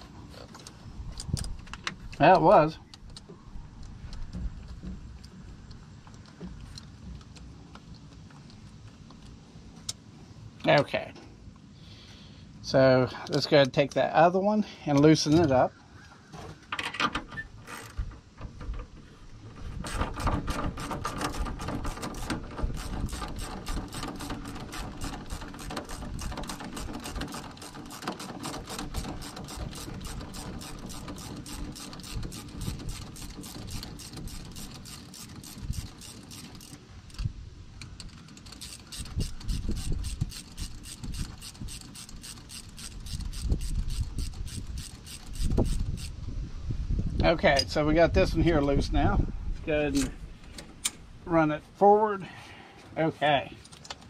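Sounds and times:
hand ratchet clicking: 0:19.8 - 0:46.2.

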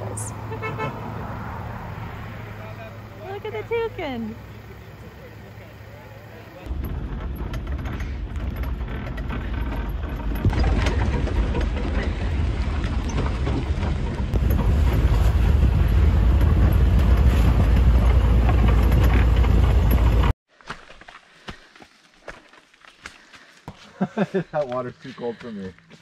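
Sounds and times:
rumble of vehicle on dirt road: 0:00.0 - 0:20.4
truck engine: 0:00.0 - 0:20.4.

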